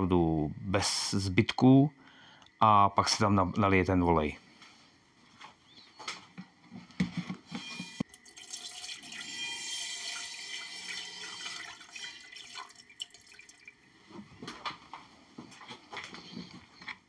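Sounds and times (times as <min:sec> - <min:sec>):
liquid trickling and splashing: 0:08.1 - 0:14.0.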